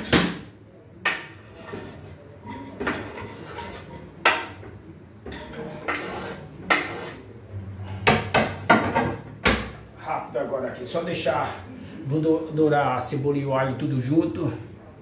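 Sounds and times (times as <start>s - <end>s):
food scraped off cutting board: 5.9s - 7.3s.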